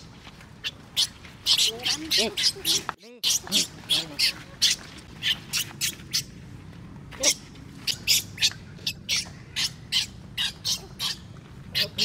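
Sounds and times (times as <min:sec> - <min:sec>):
baby monkey squealing: 0:00.6 - 0:06.3, 0:07.2 - 0:12.0.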